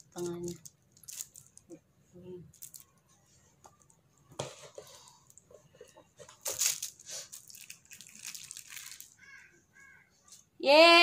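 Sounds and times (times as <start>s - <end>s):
plastic crinkling: 0.0s - 1.8s, 2.5s - 3.1s, 4.7s - 9.3s.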